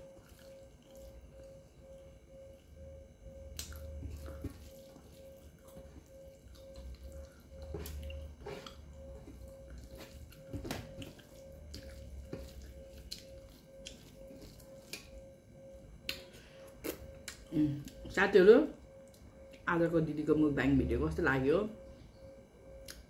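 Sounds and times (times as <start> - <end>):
chewing: 0.1 - 1.6, 3.5 - 15.3.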